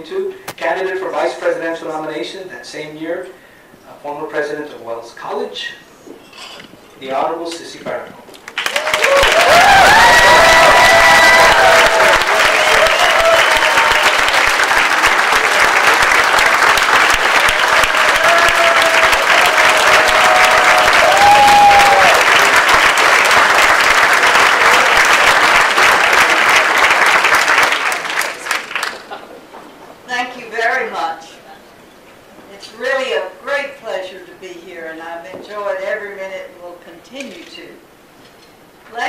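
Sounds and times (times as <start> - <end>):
audience applauding: 8.4 - 29.3.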